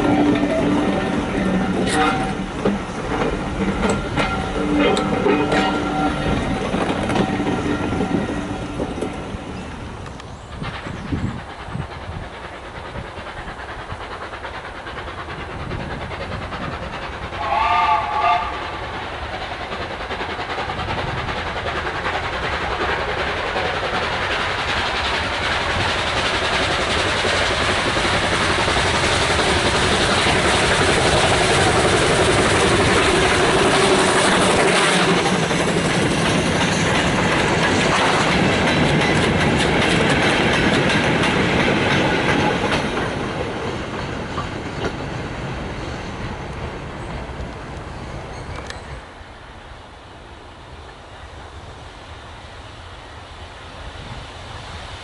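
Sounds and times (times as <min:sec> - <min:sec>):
steam locomotive whistle: 0:00.0 - 0:02.7, 0:03.8 - 0:09.2, 0:17.4 - 0:18.8
wagons rattling over rail joints: 0:00.0 - 0:49.1
train coach rolling away: 0:00.0 - 0:51.5
steam train rumble: 0:00.0 - 0:55.0.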